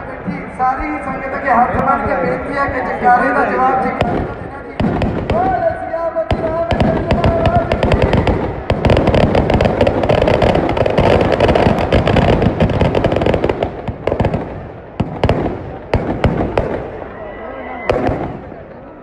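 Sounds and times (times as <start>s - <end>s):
firecrackers crackling and banging: 3.7s - 17.2s, 17.9s - 18.9s.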